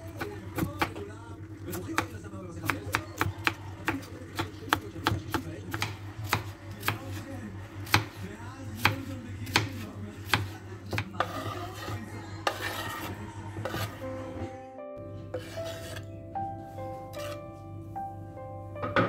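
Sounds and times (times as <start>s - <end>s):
knife chopping on cutting board: 1.9s - 14.0s
knife scraping cutting board: 8.8s - 14.1s, 15.3s - 16.1s, 17.1s - 17.5s.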